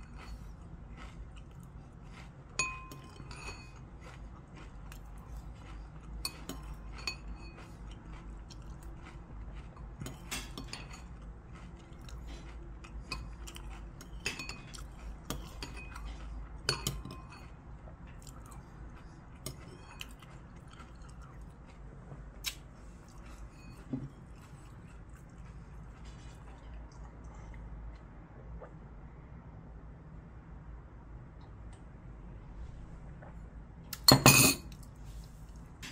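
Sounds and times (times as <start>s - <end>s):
chewing: 0.0s - 28.8s
spoon clinking ceramic bowl: 2.6s - 3.8s, 34.0s - 34.8s.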